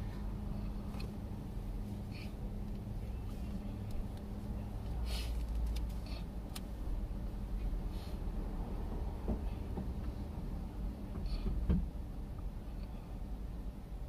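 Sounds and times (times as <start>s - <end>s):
car engine idling: 0.0s - 7.8s
traffic passing outside: 0.0s - 14.0s.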